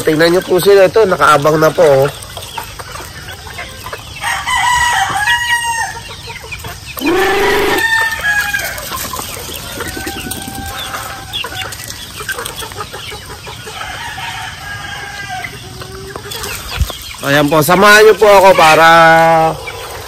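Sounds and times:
chickens clucking: 0.0s - 20.0s
rooster crowing: 7.0s - 8.9s, 9.6s - 11.6s, 13.8s - 15.5s.

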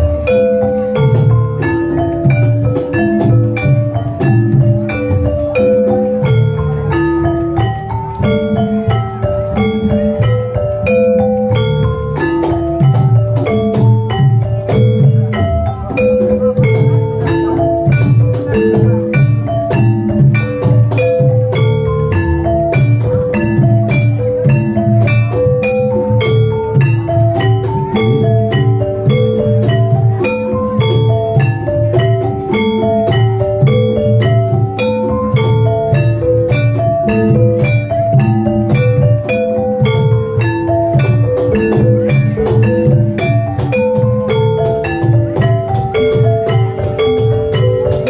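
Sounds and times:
hand drum beats: 0.0s - 48.0s
struck keyed instruments: 0.0s - 48.0s.

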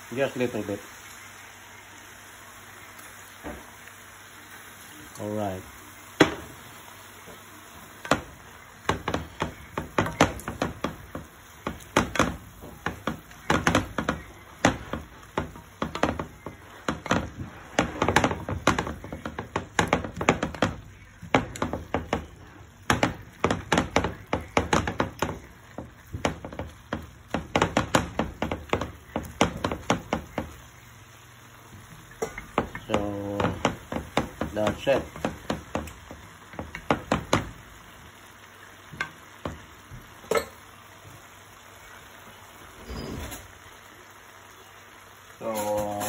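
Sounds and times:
wooden spatula tapping frying pan: 6.2s - 7.4s, 8.0s - 31.0s, 31.6s - 38.2s, 38.8s - 41.2s.

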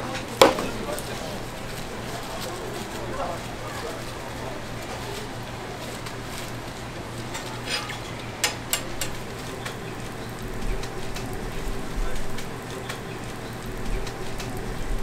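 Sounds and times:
dough sizzling in oil: 0.1s - 15.0s.

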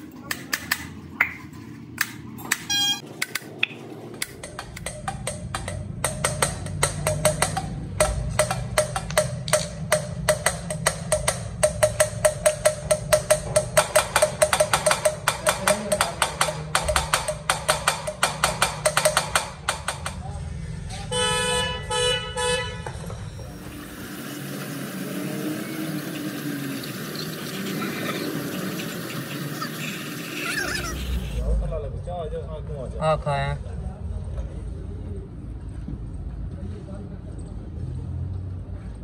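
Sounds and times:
valves knocking and grinding: 0.0s - 20.3s, 22.9s - 31.4s.

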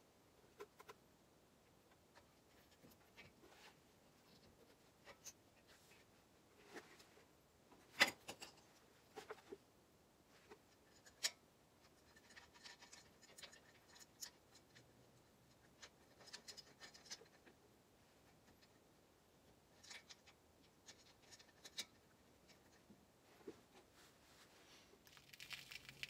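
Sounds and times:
light metal clicks and scrapes: 7.9s - 9.6s, 10.4s - 17.6s, 19.7s - 23.6s.

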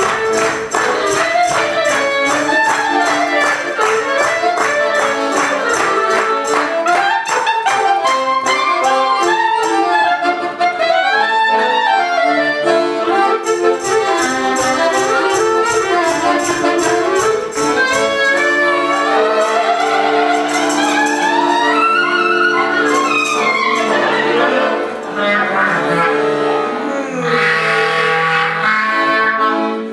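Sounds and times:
steady ticking beat: 0.0s - 10.2s, 13.3s - 25.5s
accordion chords: 0.0s - 29.9s
clarinet melody: 0.0s - 29.9s.

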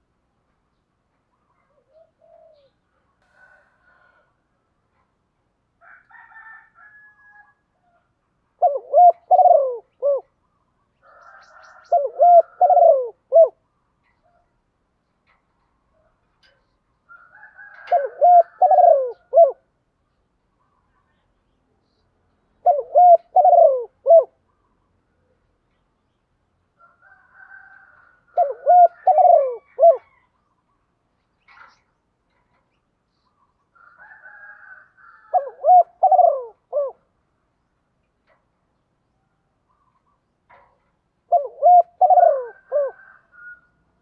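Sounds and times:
dove cooing: 1.6s - 2.8s, 8.6s - 10.4s, 11.2s - 13.6s, 17.5s - 19.7s, 22.6s - 24.4s, 28.2s - 30.3s, 35.1s - 37.1s, 40.5s - 43.7s.

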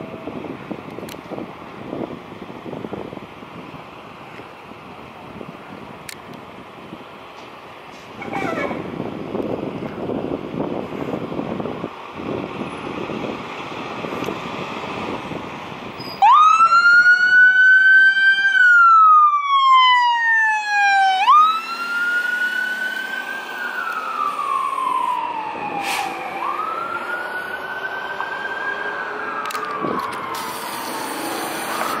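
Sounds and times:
fire engine siren wailing: 8.2s - 32.0s.

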